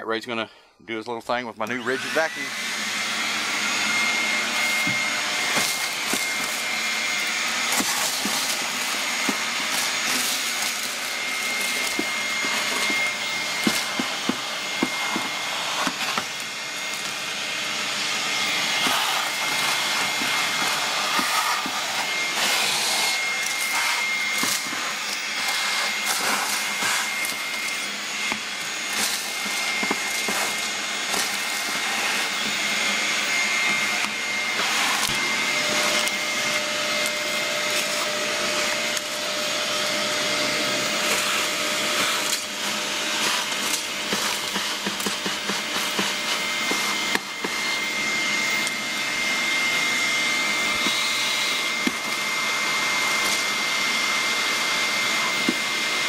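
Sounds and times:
shop vacuum running with whine: 1.6s - 56.0s
hose sucking leaves and debris: 4.4s - 40.0s.

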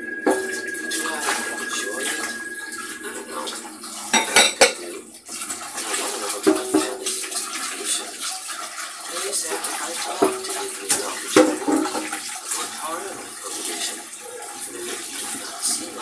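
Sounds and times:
dishes clinking and knocking: 0.0s - 4.9s, 6.3s - 7.4s, 9.6s - 12.3s
running water: 0.0s - 16.0s.

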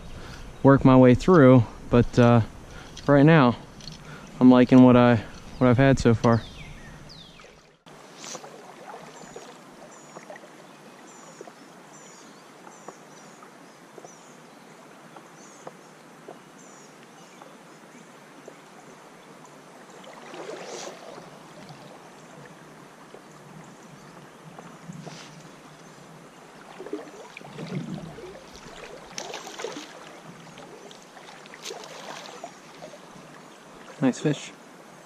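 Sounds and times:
bird chirping: 5.1s - 7.7s
creek water rushing: 7.6s - 11.1s, 19.0s - 23.8s, 25.1s - 35.0s.

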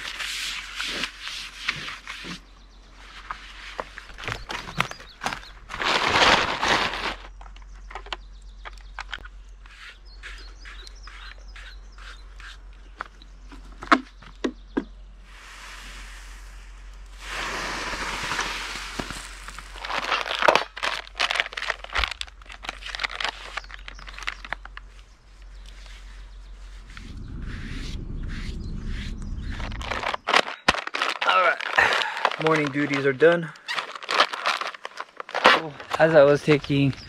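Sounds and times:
clatter of objects: 3.8s - 9.2s, 17.6s - 24.8s, 29.6s - 36.8s
objects clicking and knocking: 4.1s - 9.7s, 29.7s - 36.2s
even rushing noise: 26.6s - 30.3s.

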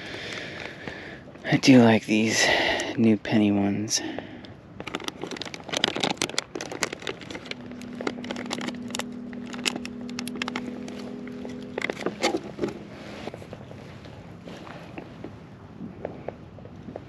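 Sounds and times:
steady low hum: 0.0s - 17.0s
plastic bag crinkling: 4.8s - 14.0s
even tones: 4.8s - 15.4s.

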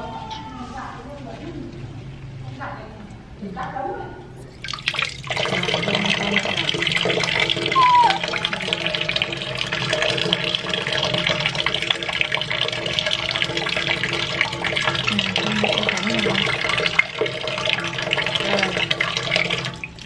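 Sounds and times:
water splashing in metal basin: 4.6s - 20.0s
monkey squeak: 7.8s - 8.2s.

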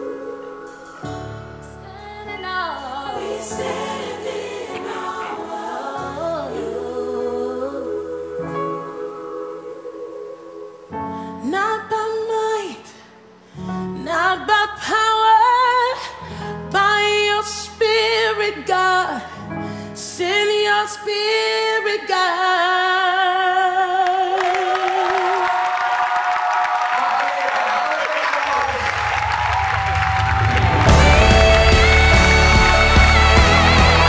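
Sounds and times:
woman singing gospel song: 0.0s - 13.0s, 13.9s - 25.9s, 30.8s - 34.0s
applause: 24.0s - 34.0s
steady low chords: 29.1s - 34.0s.

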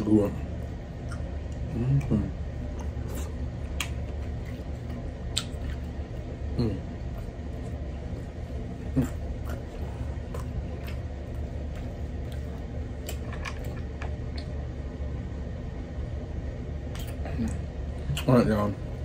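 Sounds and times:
steady low hum: 0.0s - 19.0s
close chewing with mouth clicks: 1.0s - 6.4s, 7.0s - 14.6s
lip smacks: 5.3s - 5.9s, 16.9s - 18.3s.

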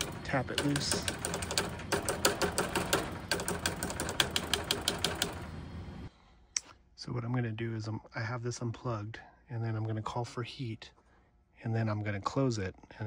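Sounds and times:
rapid tapping on control board: 0.0s - 5.6s
motor humming: 0.0s - 6.1s.

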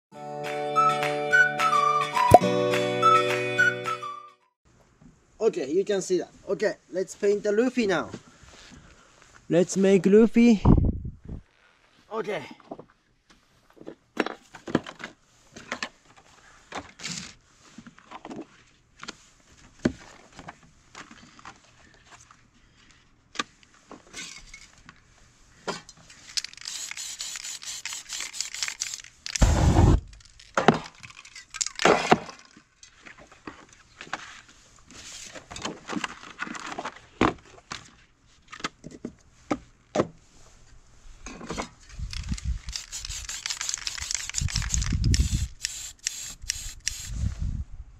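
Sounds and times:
aerosol spray hissing: 26.7s - 30.0s, 42.7s - 47.2s
loud low thump: 29.4s - 30.1s
spray cans clinking and tapping: 42.8s - 47.0s.

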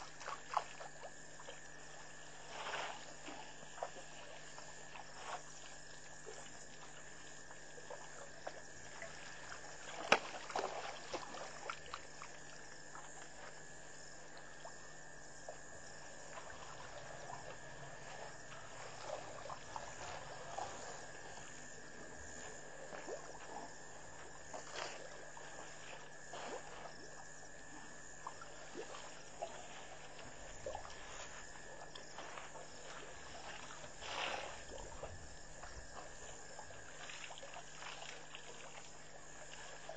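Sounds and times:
water trickling and splashing: 0.0s - 39.9s
steady high hum: 11.3s - 37.2s.

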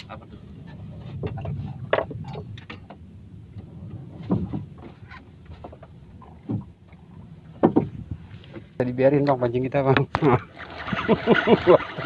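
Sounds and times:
low rumble: 0.0s - 8.5s
water lapping against boat hull: 0.0s - 12.0s
short knocks: 7.6s - 8.0s.

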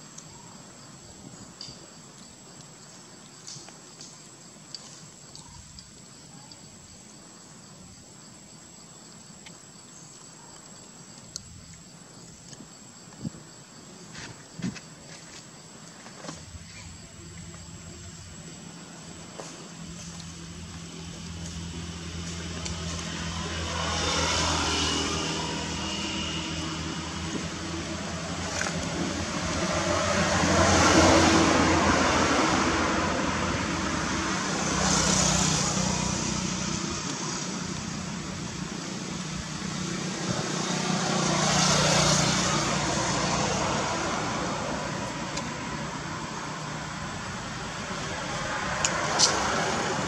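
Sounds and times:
passing motor traffic: 17.4s - 50.0s.

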